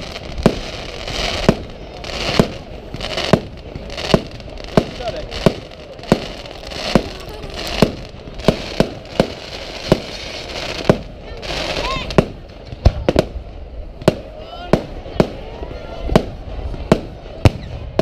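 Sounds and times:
fireworks bursting: 0.0 - 18.0.

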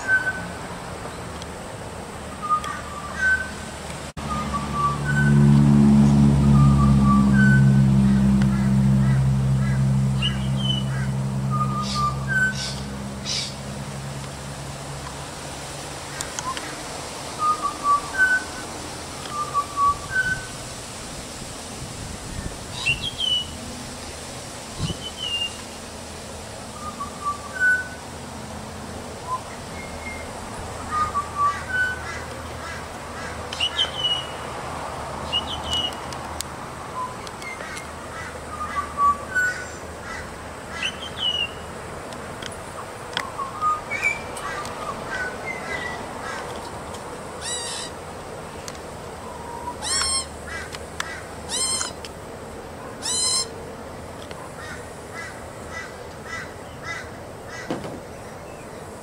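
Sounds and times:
magpie chirps and whistles: 2.4 - 3.6, 19.3 - 20.5, 26.8 - 28.0, 43.2 - 46.0, 53.0 - 53.5
magpie harsh raspy squawks: 39.5 - 41.3, 47.4 - 48.0, 49.7 - 52.0, 53.0 - 53.5, 54.6 - 57.7.

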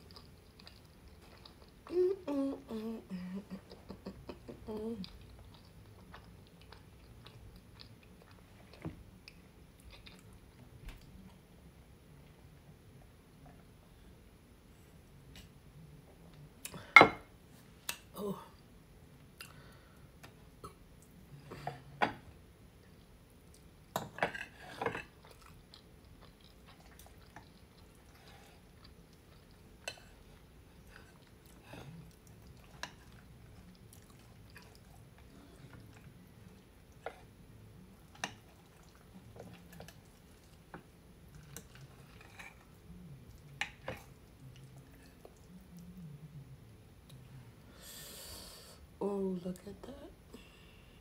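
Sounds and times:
chewing soft food: 0.0 - 2.8, 3.4 - 11.5, 22.7 - 23.9, 24.5 - 47.7.

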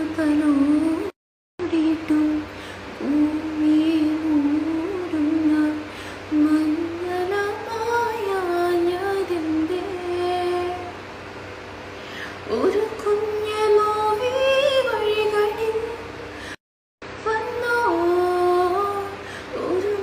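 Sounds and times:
singer breathing: 5.8 - 6.3, 11.9 - 12.5, 16.3 - 16.6, 19.2 - 19.6.

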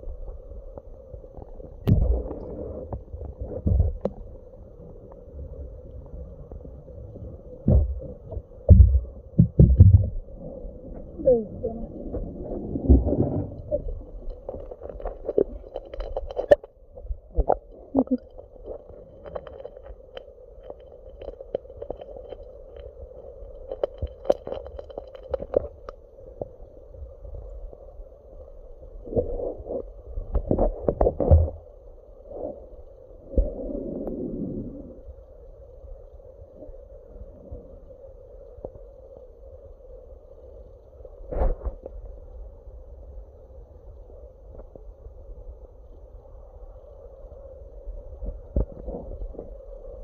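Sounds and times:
underwater rumble of moving water: 0.0 - 50.0
dull underwater thuds: 7.6 - 10.3
low sloshing thumps: 7.6 - 19.9.

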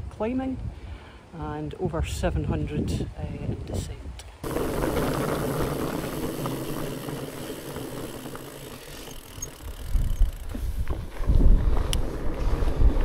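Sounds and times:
bike rattling: 4.4 - 13.0
bike tyres crackling on ground: 4.4 - 13.0
wind buffeting microphone: 9.1 - 13.0.

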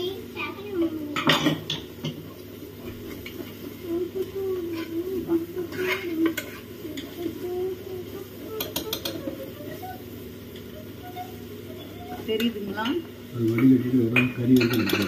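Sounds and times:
ladle scraping pot: 4.7 - 7.2.

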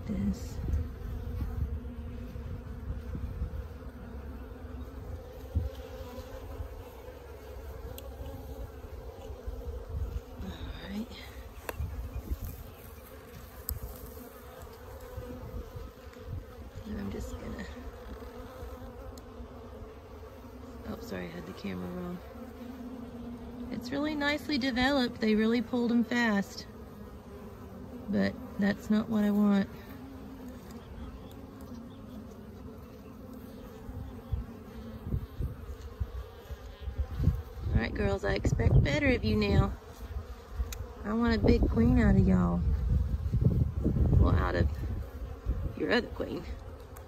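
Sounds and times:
bees buzzing: 0.0 - 47.0.

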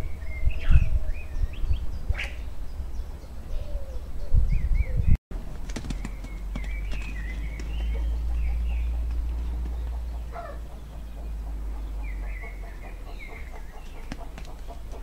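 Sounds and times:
small songbirds chirping: 0.0 - 15.0
wind rumble on microphone: 0.0 - 15.0.

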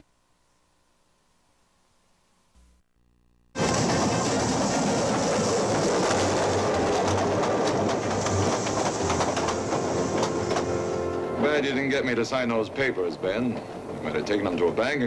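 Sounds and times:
steam train rushing: 3.6 - 15.0
wheels clicking on rails: 3.6 - 15.0.

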